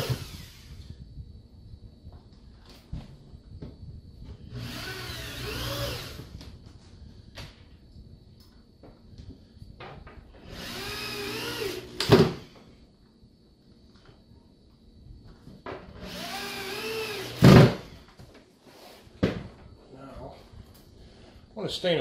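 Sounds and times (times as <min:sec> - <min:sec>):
power drill into plywood: 0:00.0 - 0:00.8, 0:04.4 - 0:06.4, 0:10.4 - 0:12.5, 0:16.0 - 0:17.9.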